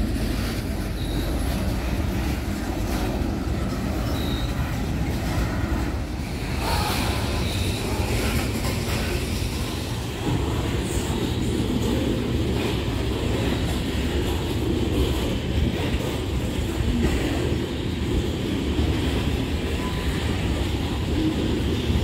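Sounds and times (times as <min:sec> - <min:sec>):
train wheels rumbling on rail: 0:00.0 - 0:22.0
faint high squeals: 0:00.8 - 0:01.8, 0:03.9 - 0:05.6, 0:06.4 - 0:08.5.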